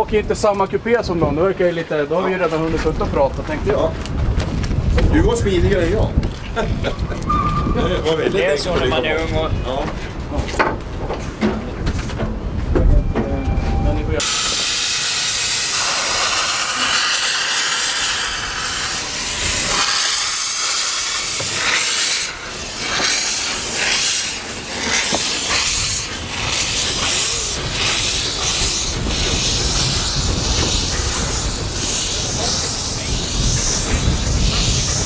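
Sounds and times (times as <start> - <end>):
steam hissing: 14.2 - 35.0
steam locomotive chuffing: 14.2 - 35.0.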